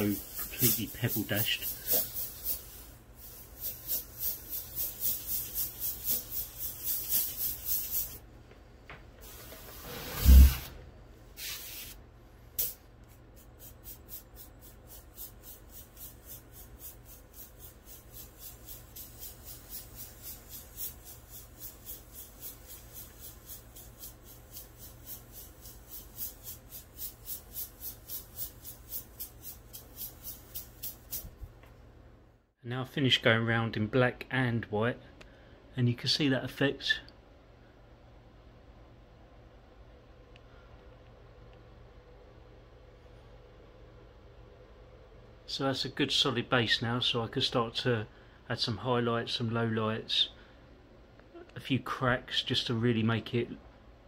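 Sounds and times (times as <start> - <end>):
airbrush hissing pulses: 0.0 - 8.2, 9.2 - 10.8, 11.4 - 12.0, 12.6 - 31.4.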